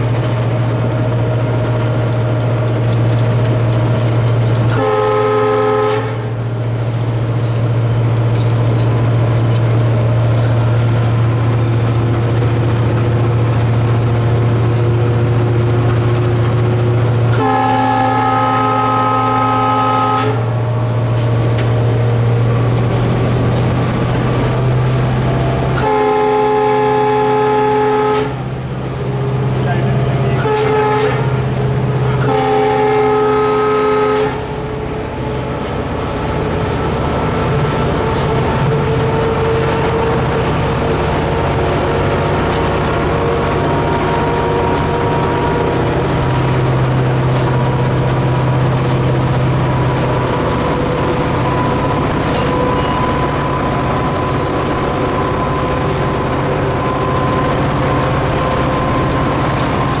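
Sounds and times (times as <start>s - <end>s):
diesel locomotive engine drone: 0.0s - 60.0s
locomotive horn: 4.0s - 6.9s, 16.6s - 21.7s, 24.8s - 47.8s, 50.0s - 60.0s.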